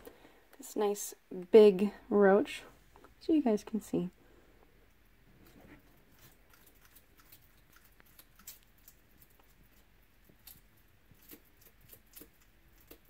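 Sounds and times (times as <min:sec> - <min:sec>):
lizard chewing crunchy insect: 0:04.8 - 0:13.0.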